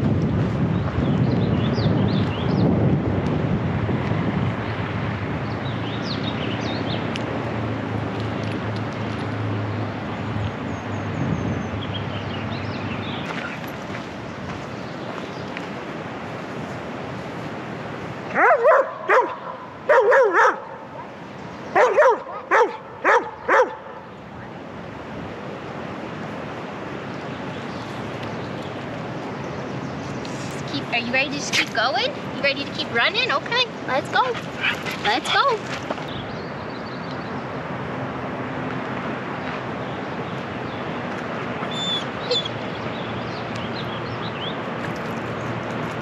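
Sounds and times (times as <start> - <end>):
dog barking: 18.3 - 21.2, 21.8 - 24.0.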